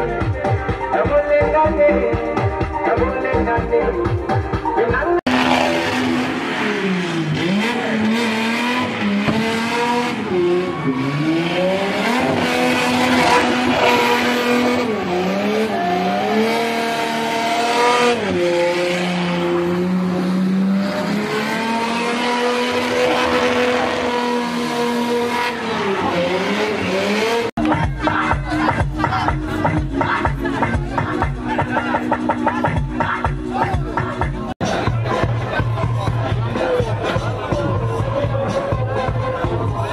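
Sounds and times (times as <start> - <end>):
car engine revving hard: 5.3 - 27.6.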